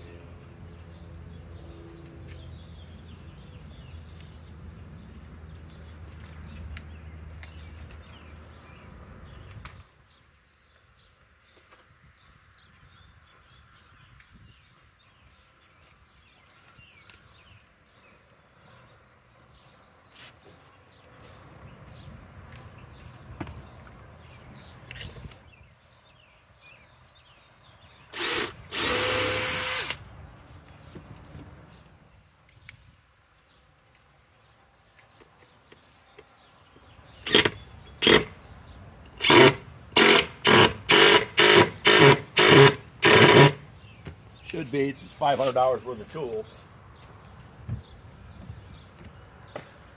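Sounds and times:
small birds chirping: 0.0s - 39.3s, 43.3s - 49.9s
cordless drill motor bursts: 28.1s - 30.0s, 39.2s - 43.6s.

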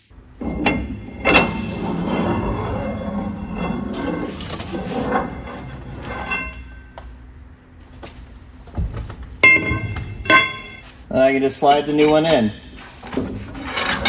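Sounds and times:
metal shaft scraping and sliding: 0.3s - 7.1s, 11.5s - 14.0s
ringing clink of metal: 9.4s - 10.9s.

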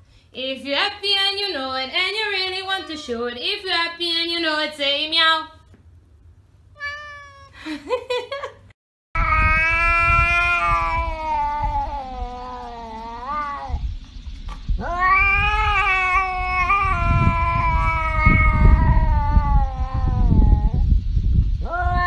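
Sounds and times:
cat yowling: 6.8s - 7.6s, 9.2s - 13.8s, 14.8s - 20.8s, 21.6s - 22.0s.

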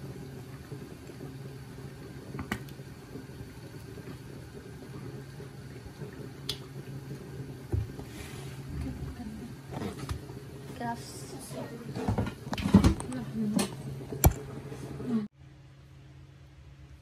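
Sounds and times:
low mechanical hum: 0.0s - 17.0s.

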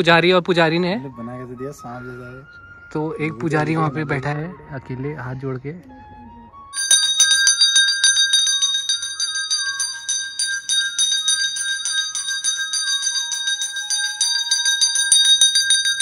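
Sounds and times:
temple bells clanging rapidly: 6.8s - 16.0s.

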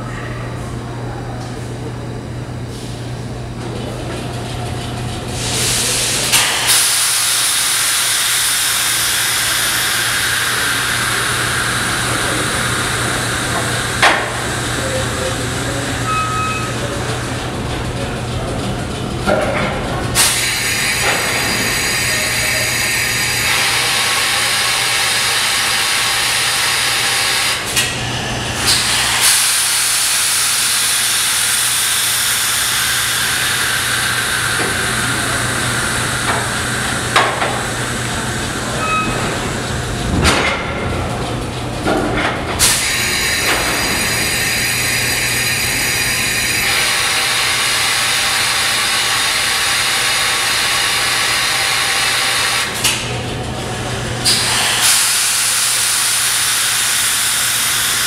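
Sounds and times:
air brake hissing: 54.2s - 58.0s.

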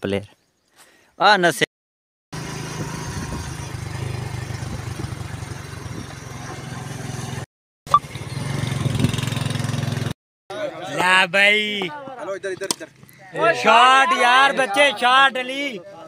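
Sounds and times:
motorcycle engine running: 2.4s - 10.1s.

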